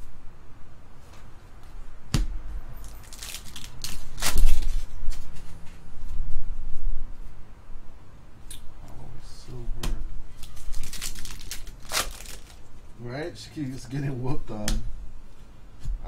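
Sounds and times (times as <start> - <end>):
cards and wrapper crinkling: 2.8 - 5.3, 10.4 - 12.7.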